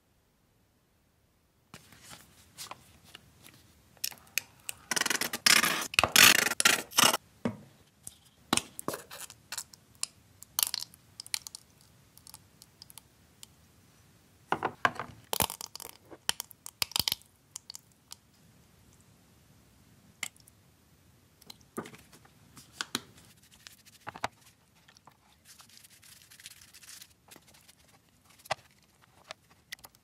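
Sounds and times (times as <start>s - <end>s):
small clicks and splats: 8.8s - 13.5s, 23.6s - 30.0s.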